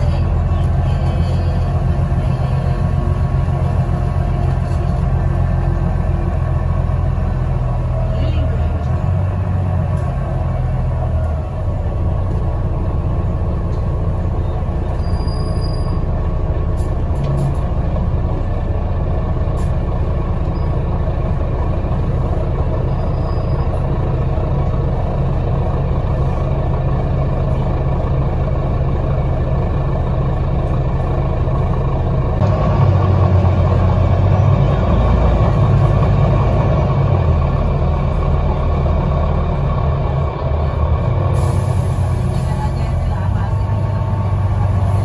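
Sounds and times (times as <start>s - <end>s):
bus engine rumble: 0.0s - 45.0s.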